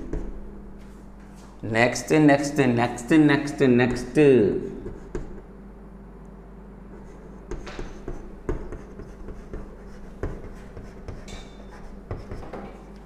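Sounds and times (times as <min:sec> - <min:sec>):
low steady hum: 0:00.0 - 0:13.0
chalk tapping and scraping: 0:04.8 - 0:05.4, 0:07.0 - 0:13.0.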